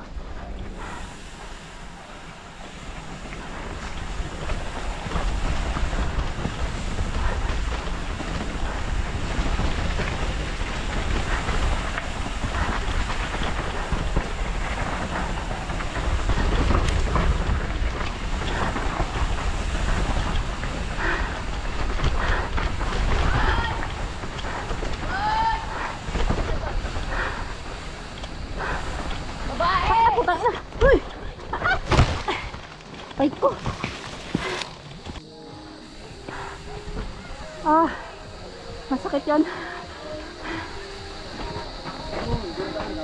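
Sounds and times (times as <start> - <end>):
wind buffeting microphone: 0.0 - 32.5
mountain bike rattling on dirt: 0.0 - 35.2, 36.2 - 43.0.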